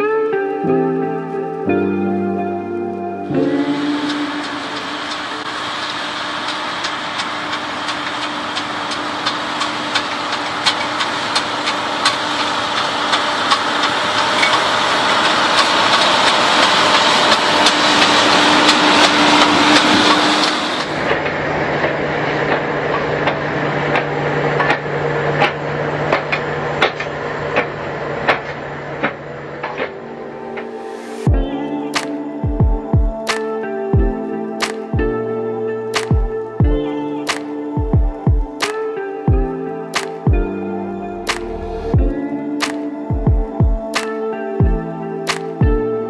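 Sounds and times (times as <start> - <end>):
tractor engine drone: 3.3 - 32.4, 40.3 - 42.6.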